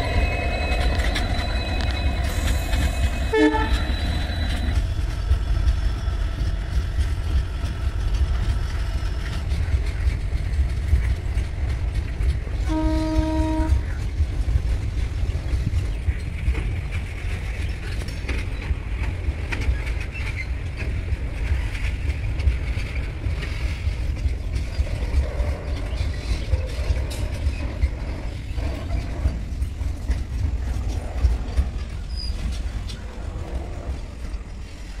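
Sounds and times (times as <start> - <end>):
freight train wheels rumbling: 0.0 - 35.0.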